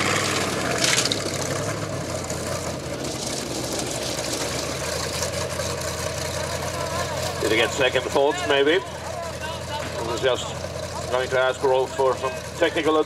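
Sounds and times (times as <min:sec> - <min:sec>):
car engine running at low revs: 0:00.0 - 0:13.0.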